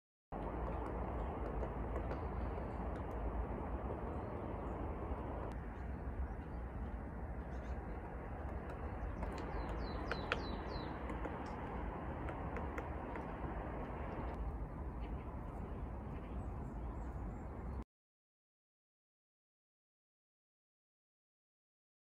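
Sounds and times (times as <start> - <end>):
woodpecker tapping: 0.4 - 5.6, 6.3 - 14.4
high falling bird calls: 0.4 - 14.4
background rushing noise: 0.4 - 16.1.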